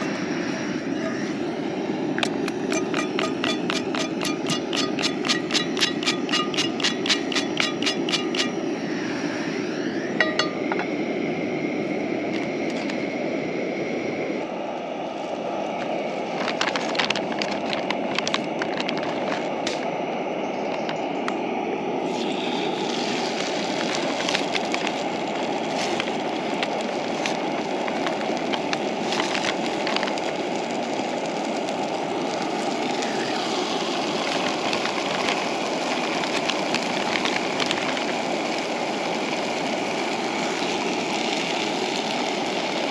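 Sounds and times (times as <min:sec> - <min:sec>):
gas stove burner running: 0:00.0 - 0:42.9
chicken sizzling in oil: 0:01.2 - 0:11.0, 0:22.0 - 0:42.9
sharp clicks and crackles: 0:02.2 - 0:08.6, 0:15.8 - 0:19.9, 0:20.6 - 0:21.4, 0:22.2 - 0:38.4.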